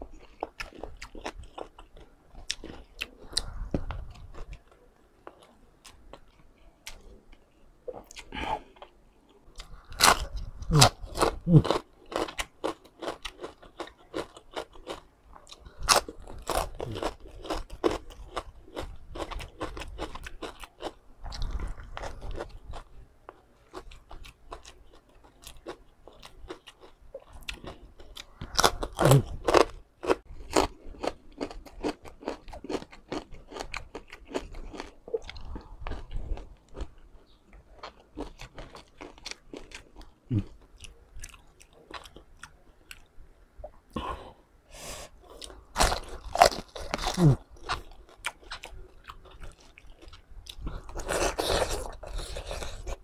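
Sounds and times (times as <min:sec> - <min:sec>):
crunchy chewing: 0:00.0 - 0:43.1, 0:45.2 - 0:53.0.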